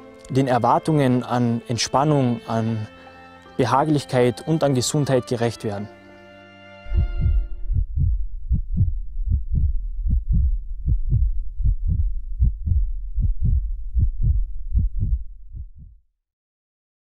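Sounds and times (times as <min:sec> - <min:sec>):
deep muffled thumps: 0:06.9 - 0:16.0.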